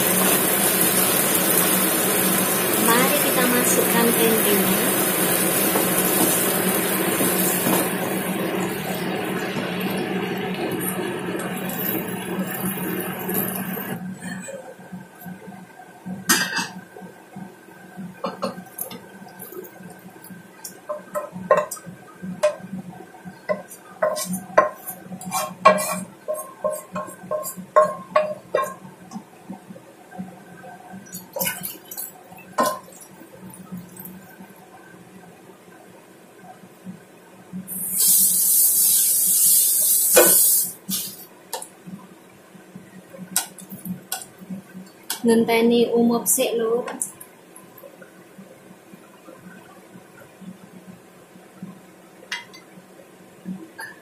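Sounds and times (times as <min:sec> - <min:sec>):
sizzling in a pot: 0:00.0 - 0:14.2, 0:15.0 - 0:35.4, 0:37.4 - 0:54.0
wooden spatula scraping wok: 0:23.7 - 0:27.8.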